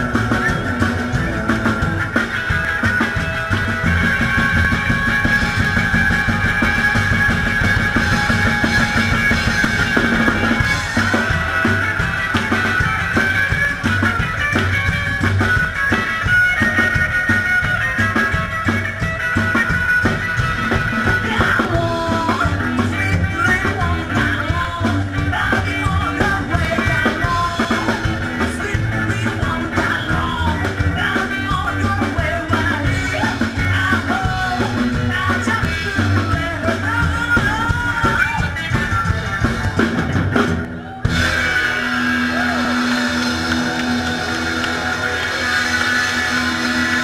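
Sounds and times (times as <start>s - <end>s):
upright double bass: 0.0s - 18.5s
drums beat: 0.0s - 47.0s
electric guitar melody: 0.0s - 47.0s.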